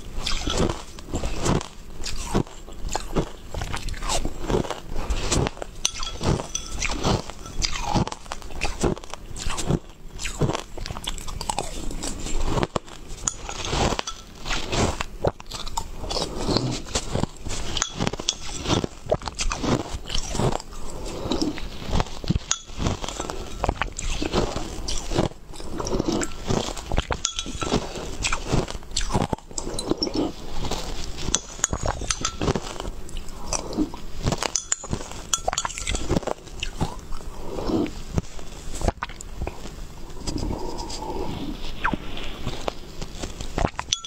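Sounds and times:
ice chunks crunched and chewed: 0.0s - 37.3s, 41.8s - 44.0s.

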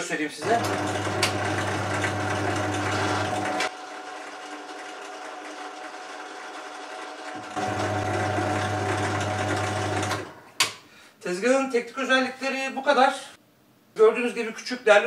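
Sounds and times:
drill press electric hum: 0.4s - 10.7s.

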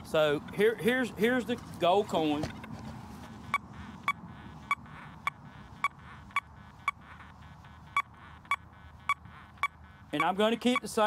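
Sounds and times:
metal detector beeps: 3.2s - 11.0s.

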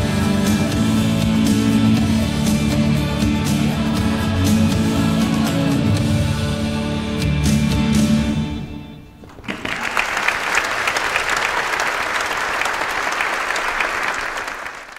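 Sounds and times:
congregation applauding: 9.2s - 14.9s.

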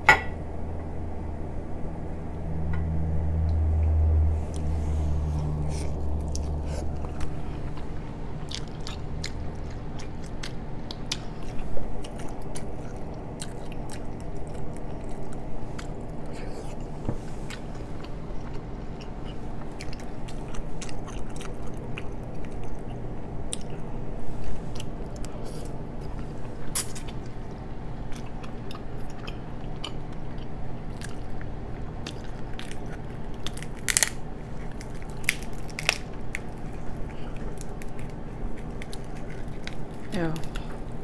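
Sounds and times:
low hum: 0.0s - 41.0s
chewing: 5.3s - 23.9s, 24.5s - 41.0s
crab shell cracking: 32.6s - 40.7s.

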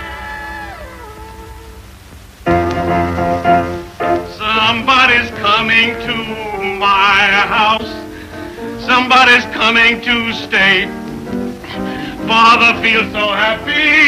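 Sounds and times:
operatic singing with vibrato: 0.0s - 2.0s, 4.3s - 11.0s, 11.6s - 14.0s
musical accompaniment: 0.0s - 14.0s.

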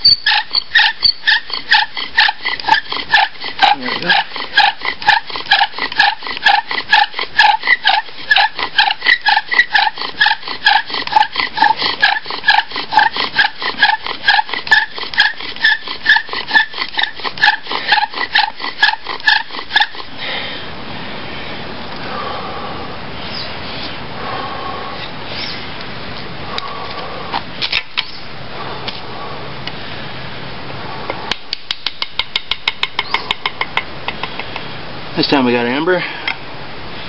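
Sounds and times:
bow drill spindle squeaking: 0.0s - 20.1s.

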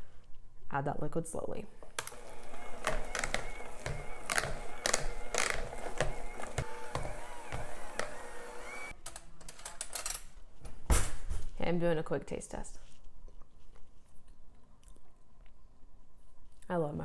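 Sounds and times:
electric hand mixer running: 2.0s - 9.0s.

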